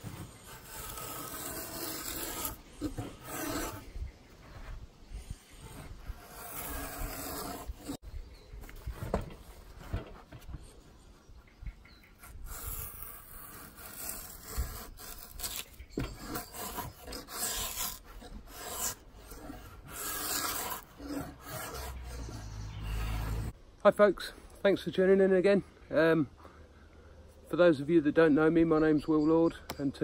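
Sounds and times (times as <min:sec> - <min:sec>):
draw knife scraping bark: 0:00.0 - 0:08.0, 0:12.0 - 0:23.5.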